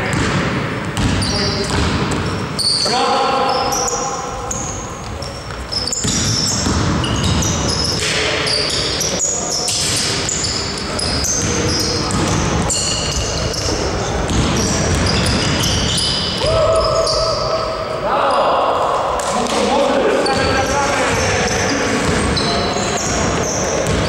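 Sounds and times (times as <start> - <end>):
basketball bouncing: 0.0 - 2.4, 4.5 - 8.2, 9.7 - 16.7, 22.0 - 24.0
sneaker squeaks on court floor: 0.0 - 17.8, 20.2 - 24.0
players shouting: 16.4 - 21.5.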